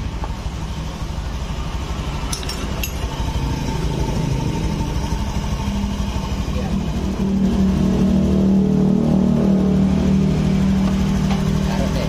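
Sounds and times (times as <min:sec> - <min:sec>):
scooter engine idling: 0:00.0 - 0:08.5, 0:09.7 - 0:12.0
light metallic clinks: 0:02.3 - 0:03.2.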